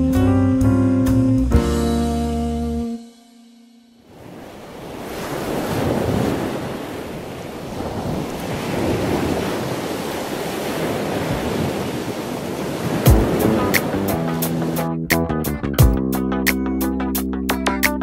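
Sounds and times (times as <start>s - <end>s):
ocean waves breaking: 4.0s - 15.0s.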